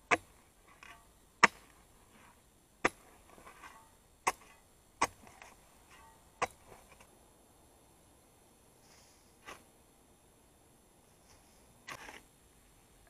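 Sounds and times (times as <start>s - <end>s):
scrape and patter of soil: 0.0s - 7.1s, 8.8s - 9.7s, 11.0s - 12.3s
spade striking dry earth: 0.0s - 7.1s, 8.9s - 9.7s, 11.8s - 12.3s.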